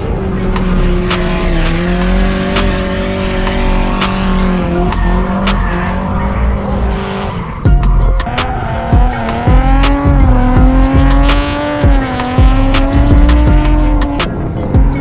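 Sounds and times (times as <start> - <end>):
background music with clicking beat: 0.0 - 6.7, 7.5 - 15.0
tyres squealing: 0.0 - 10.6
car engine at high revs: 0.0 - 15.0.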